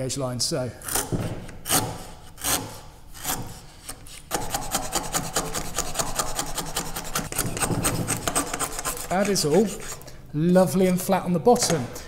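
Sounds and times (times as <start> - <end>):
plane blade scraping wood: 0.8 - 10.0.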